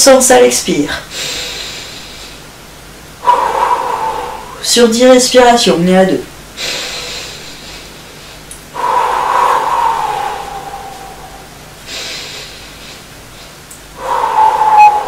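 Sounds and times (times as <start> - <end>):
woman breathing: 1.1 - 2.5, 3.2 - 4.6, 6.6 - 15.0.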